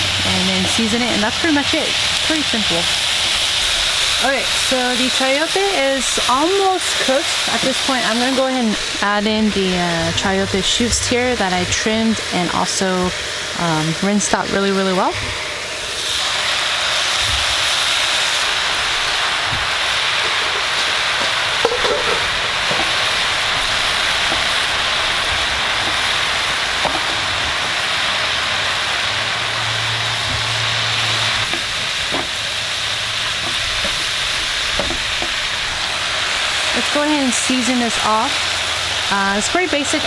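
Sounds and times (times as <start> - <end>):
stir-fry sizzling in a frying pan: 0.0 - 40.0.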